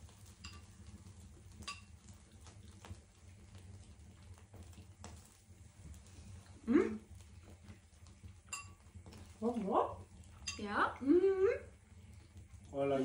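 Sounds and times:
person humming hm: 6.7 - 7.0.

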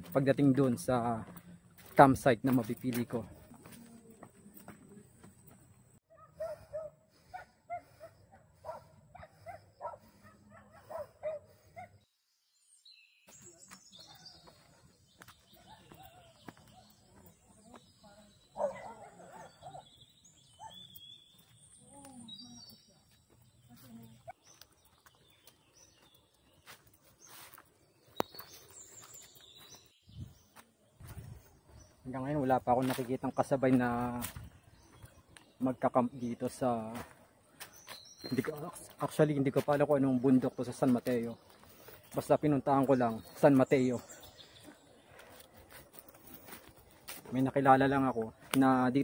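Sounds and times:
footsteps on dirt: 0.0 - 11.8, 13.2 - 49.0
faint birds chirping: 0.0 - 49.0
dog barking: 6.1 - 12.0, 18.6 - 19.8.

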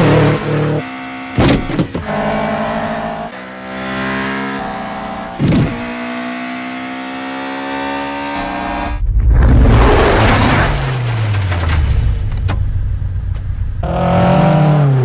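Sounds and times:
car engine accelerating: 0.0 - 9.0.

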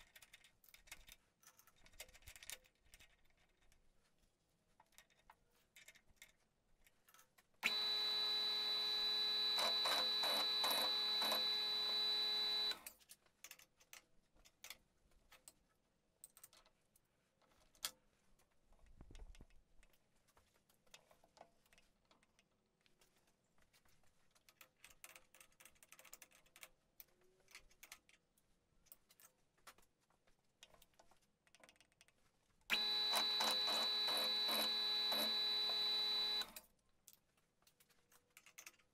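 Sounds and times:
milling machine spindle whine: 7.6 - 12.8, 32.7 - 36.5.

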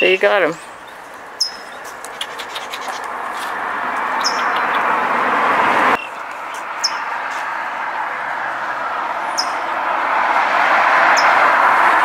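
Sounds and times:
high falling bird chirps: 0.0 - 5.1, 6.0 - 7.2, 9.3 - 9.7.

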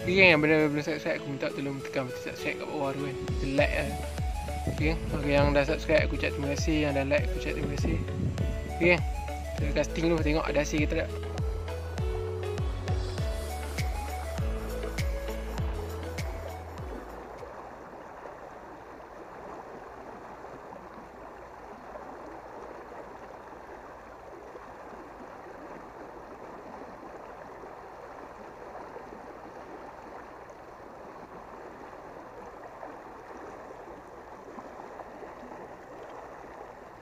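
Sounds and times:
river water rushing: 0.0 - 37.0.

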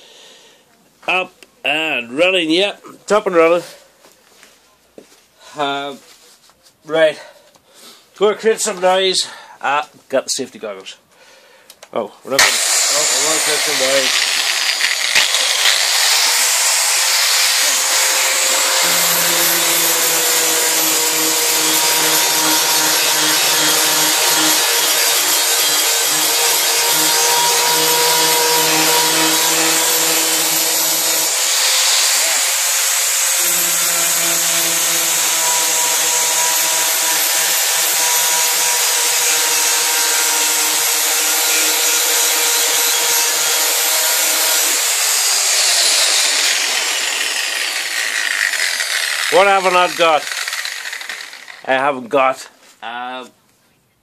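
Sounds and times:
angle grinder sanding metal: 12.4 - 51.9.

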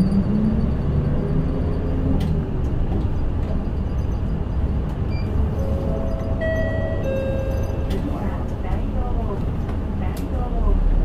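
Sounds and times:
bus engine and road rumble: 0.0 - 11.0
steady chime-like tone: 5.5 - 7.9.

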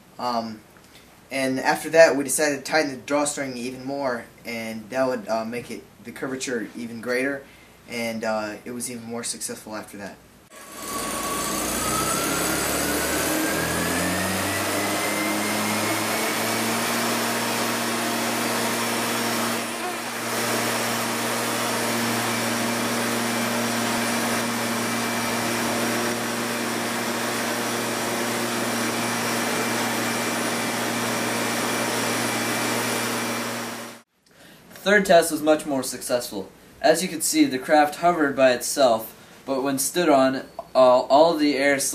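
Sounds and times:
leaf blower engine revving: 10.5 - 34.0.

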